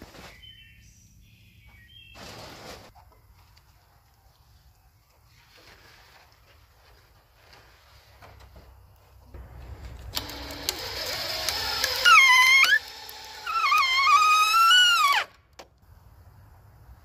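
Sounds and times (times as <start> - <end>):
cordless drill driving a screw: 10.1 - 15.3.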